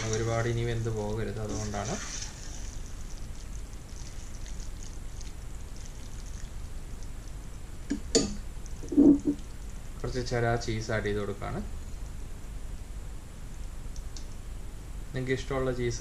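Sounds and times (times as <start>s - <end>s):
spatula stirring pasta in pan: 1.4s - 4.9s.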